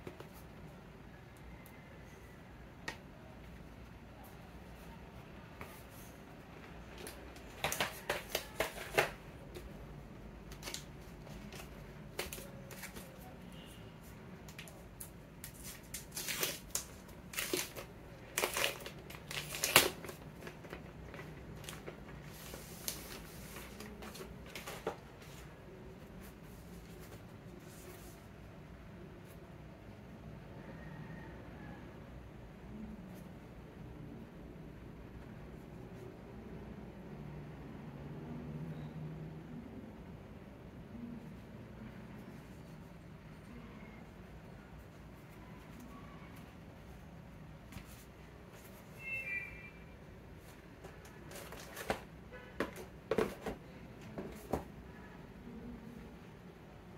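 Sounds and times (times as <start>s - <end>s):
plastic wrapping crinkling: 15.4s - 25.0s.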